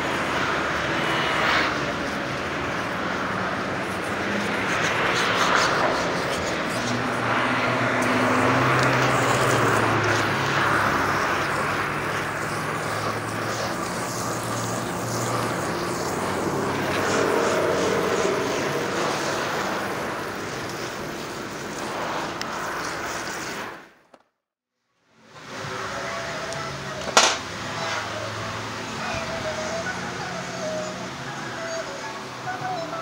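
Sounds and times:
hose spray splashing on tyre: 0.1 - 24.0.

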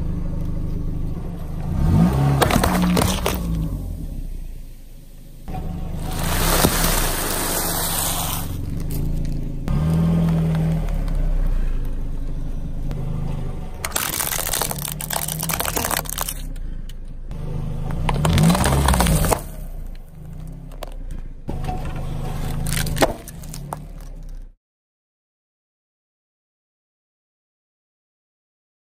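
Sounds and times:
car engine running low: 0.0 - 24.6
tyre crunching objects on asphalt: 1.5 - 4.2, 5.8 - 12.3, 13.8 - 16.5, 17.8 - 24.5
sharp crack: 13.8 - 16.5.

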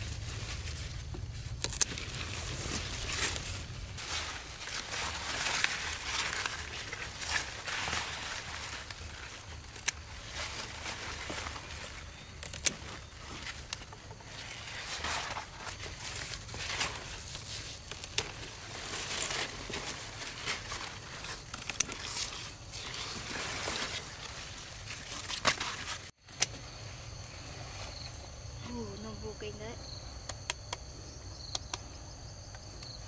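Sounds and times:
leaves and stems rustling: 0.0 - 30.2
insects chirring: 0.0 - 33.0
plant stems snapping: 0.8 - 17.2, 17.8 - 24.3, 24.9 - 26.5.

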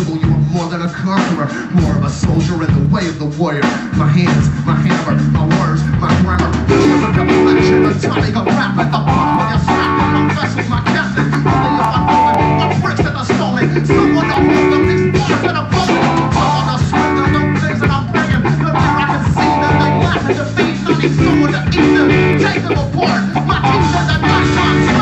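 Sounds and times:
drum kit beat: 0.0 - 25.0
electric guitar riff: 6.2 - 25.0.

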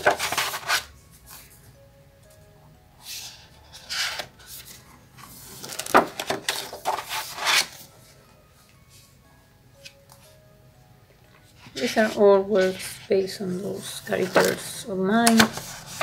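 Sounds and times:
paper pages rustling: 0.0 - 1.5, 3.1 - 7.9, 14.0 - 14.6, 15.2 - 16.0.

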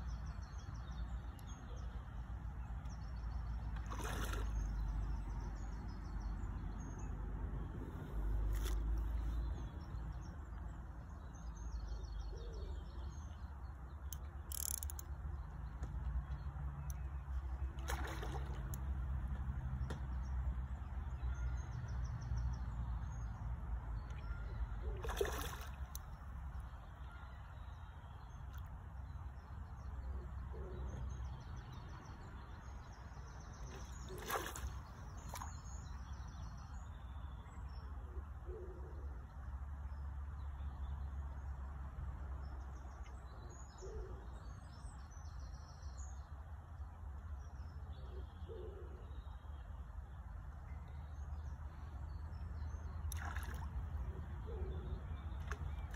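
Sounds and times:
faint birds calling: 24.0 - 39.5, 47.4 - 55.9.

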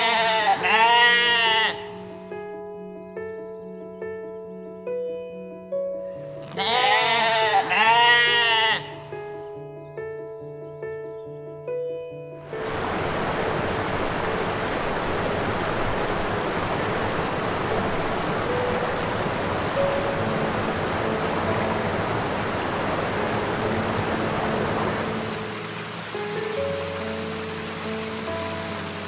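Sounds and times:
rushing water: 0.0 - 2.2, 6.6 - 9.0, 12.4 - 29.0
soft background music: 0.0 - 29.0.

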